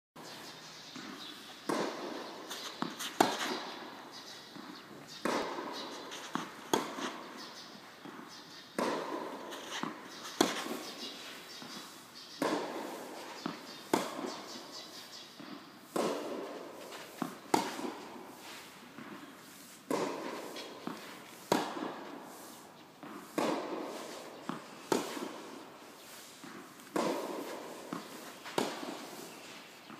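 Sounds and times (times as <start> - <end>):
tennis ball strikes echoing: 0.9 - 29.9.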